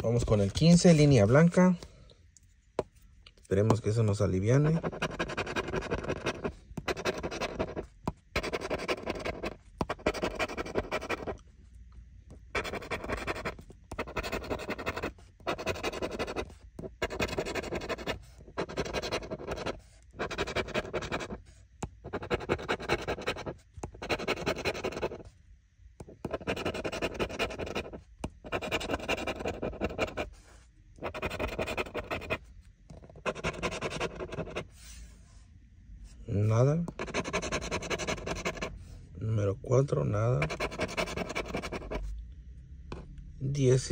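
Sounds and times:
scratching lottery ticket coating: 4.5s - 11.4s, 12.5s - 21.4s, 22.1s - 25.2s, 26.2s - 30.3s, 31.0s - 32.4s, 33.2s - 34.6s, 37.0s - 38.6s, 40.4s - 41.9s.

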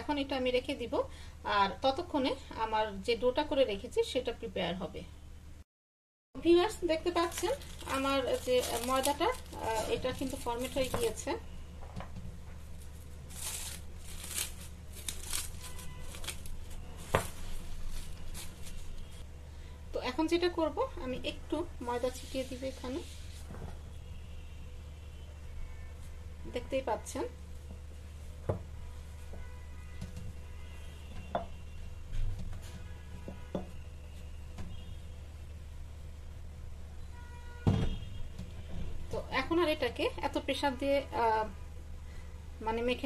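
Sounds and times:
cling wrap crinkling: 7.0s - 11.2s, 12.6s - 19.2s.

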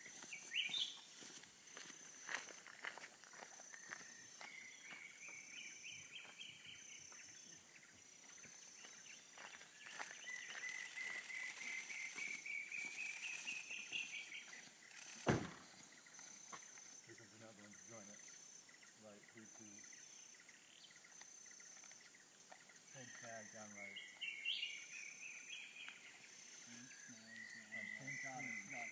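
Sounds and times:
bird singing rising whistled notes: 0.0s - 1.1s, 3.7s - 16.4s, 22.9s - 28.9s
pulsing high insect call: 0.0s - 28.9s
sharp thump: 15.2s - 15.7s.

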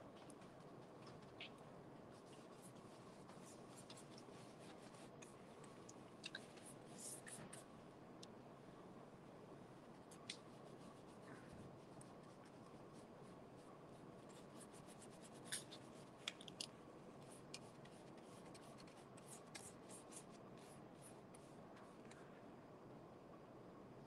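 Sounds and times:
low room hiss: 0.0s - 24.0s
paintbrush scratching and ticking: 0.2s - 7.7s, 9.9s - 21.5s.

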